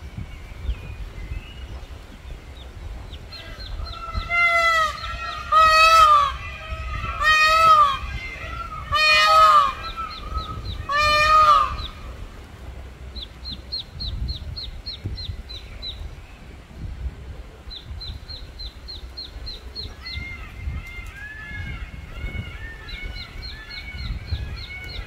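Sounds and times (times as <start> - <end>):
waterfowl honking: 4.0 - 12.1.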